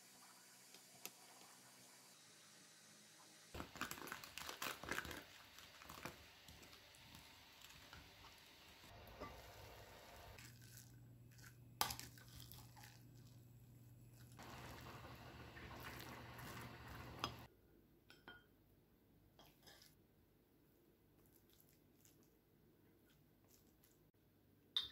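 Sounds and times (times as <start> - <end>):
rice being stirred: 3.6 - 13.4, 14.1 - 17.5.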